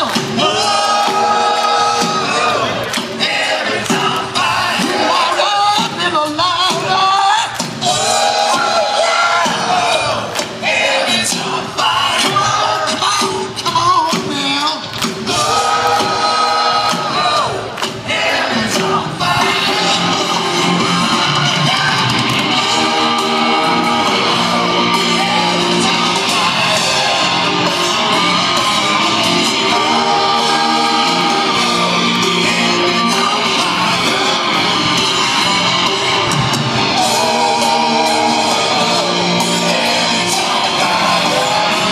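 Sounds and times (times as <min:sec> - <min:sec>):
live rock band: 0:00.0 - 0:41.9
person singing: 0:18.3 - 0:41.9
electric guitar: 0:19.2 - 0:41.9.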